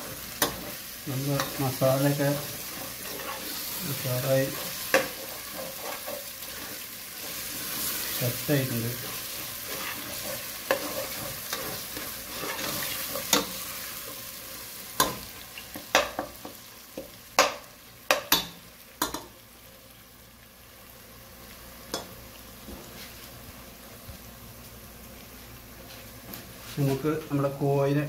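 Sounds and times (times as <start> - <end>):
spices sizzling in oil: 0.0 - 28.0
metal spoon scraping pot: 2.6 - 3.6.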